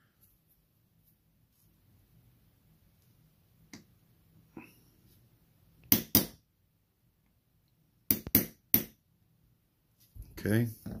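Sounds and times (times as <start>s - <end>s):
small hammer tapping on punch: 5.9s - 6.4s, 8.1s - 9.0s.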